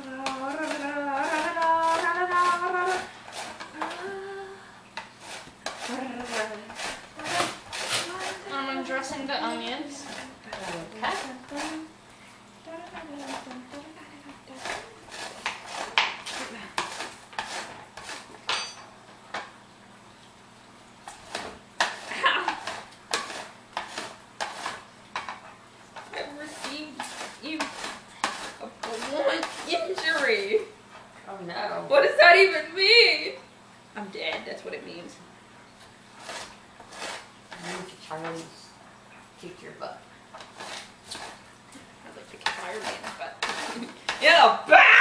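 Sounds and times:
person humming: 0.0 - 3.1, 3.7 - 4.8, 5.8 - 8.6, 10.0 - 11.9, 12.6 - 15.1
dishes and utensils clinking: 18.5 - 19.0.

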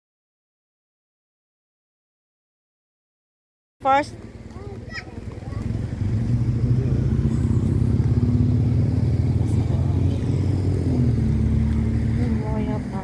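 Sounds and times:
motor engine running: 3.8 - 13.0.

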